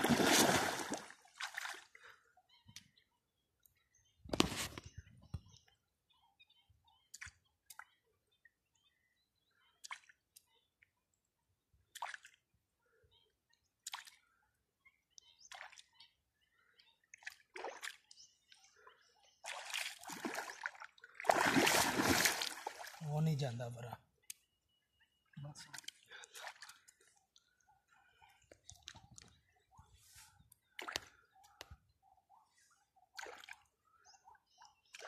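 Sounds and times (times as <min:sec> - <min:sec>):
water splashing: 0:00.0 - 0:01.8, 0:19.4 - 0:23.0.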